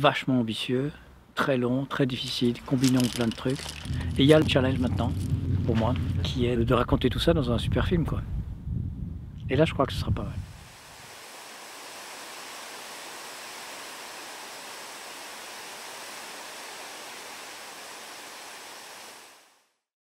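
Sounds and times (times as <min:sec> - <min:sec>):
river water rushing: 0:10.6 - 0:19.6.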